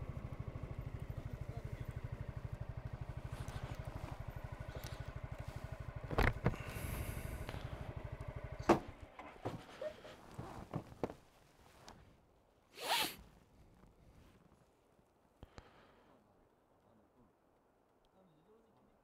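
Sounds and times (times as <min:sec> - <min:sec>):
scooter engine idling: 0:00.0 - 0:10.9.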